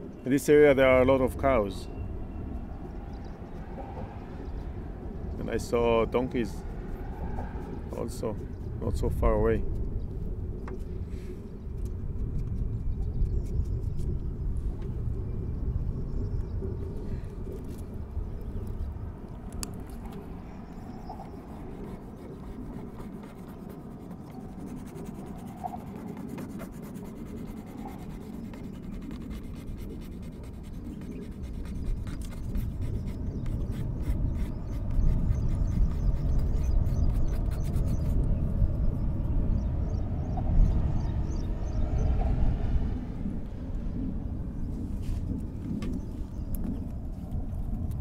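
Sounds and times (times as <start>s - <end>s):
low rumble: 1.2s - 25.9s, 31.6s - 48.0s
paintbrush scratching on paper: 21.0s - 38.3s.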